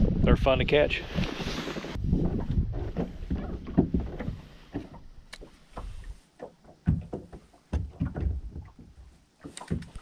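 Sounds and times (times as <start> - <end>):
wind gusting on microphone: 0.0 - 4.5.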